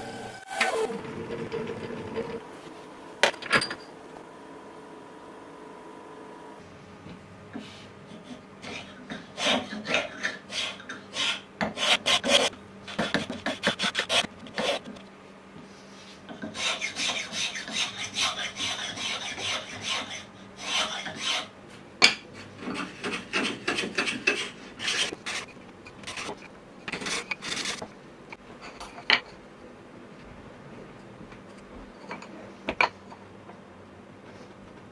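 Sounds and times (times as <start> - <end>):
spokeshave rasping on wood: 16.5 - 21.5.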